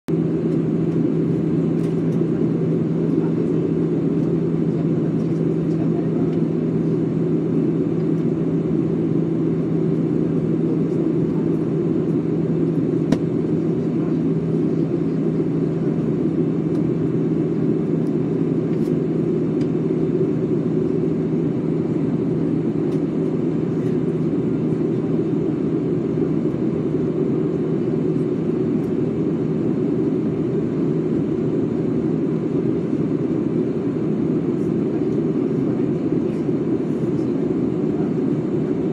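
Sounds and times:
airliner cabin engine and airflow noise: 0.1 - 38.9
steady low hum: 0.1 - 38.9.

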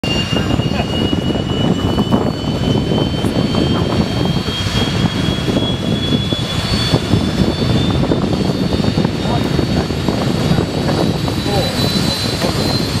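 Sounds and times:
jet engine rising whine: 0.0 - 13.0
jet engine rough rumble: 0.0 - 13.0.

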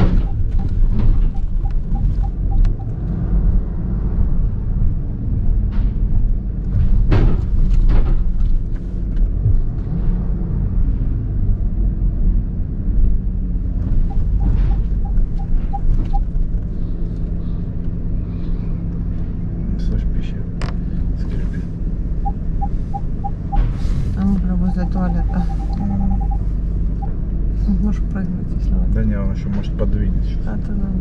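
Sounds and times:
parking sensor beeps: 0.0 - 3.0, 14.0 - 16.3, 22.2 - 27.2
car cabin rumble: 0.0 - 3.8, 13.0 - 31.0.

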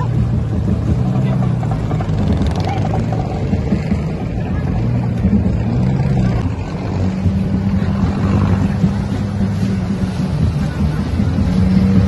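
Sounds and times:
motorboat engine running: 0.0 - 12.0
water rushing along hull: 0.0 - 12.0.

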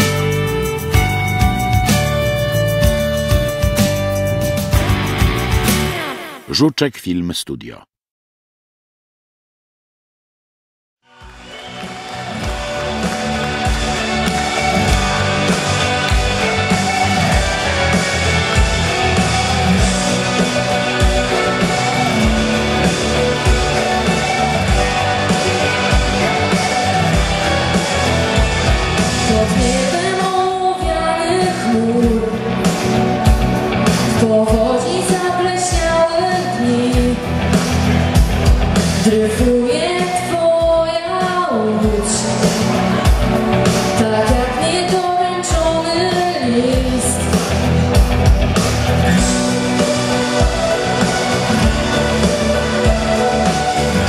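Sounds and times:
instrumental accompaniment with beat: 0.0 - 6.4, 11.2 - 54.0
woman singing pop song: 29.2 - 32.8, 34.1 - 37.4, 39.0 - 43.1, 43.9 - 47.4.

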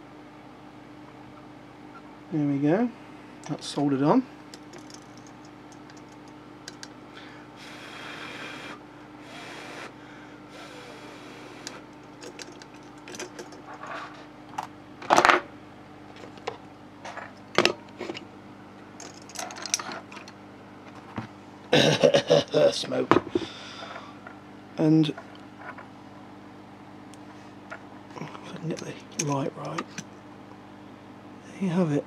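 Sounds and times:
faint steady hum: 0.0 - 32.0
metal clinks and knocks on desk: 4.5 - 6.9.

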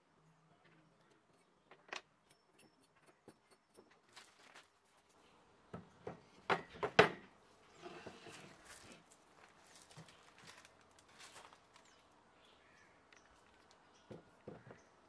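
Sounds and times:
soft rustle: 7.6 - 12.1.

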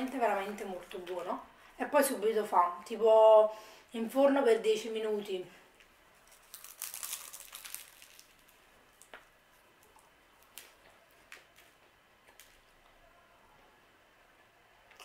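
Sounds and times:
pastry crackling: 5.8 - 13.0
soft chewing: 5.8 - 13.6.

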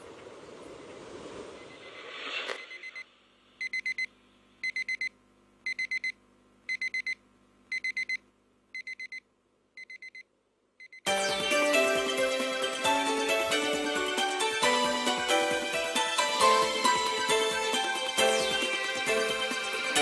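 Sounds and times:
digital alarm clock beeping: 3.6 - 5.1, 5.7 - 6.1, 6.7 - 8.2, 8.8 - 9.2, 9.8 - 10.2.

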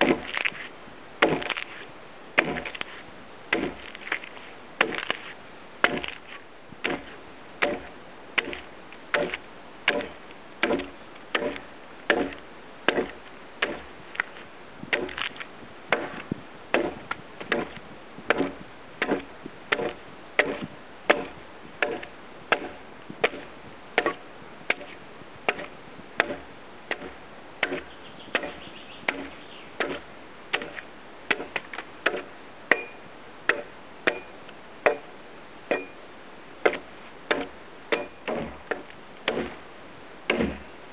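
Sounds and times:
axe chopping into timber: 1.2 - 1.7, 2.4 - 2.8, 3.5 - 4.2, 4.8 - 5.2, 5.8 - 13.9, 14.9 - 15.3, 15.9 - 24.9, 25.5 - 28.5, 29.1 - 35.1, 36.6 - 39.6, 40.3 - 40.6.

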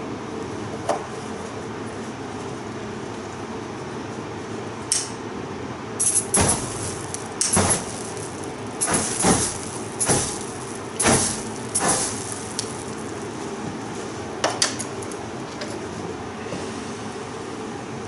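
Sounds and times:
steady low hum: 5.7 - 16.4
spray catching fire in flares: 6.0 - 13.4
aerosol spray hissing: 7.4 - 12.9.

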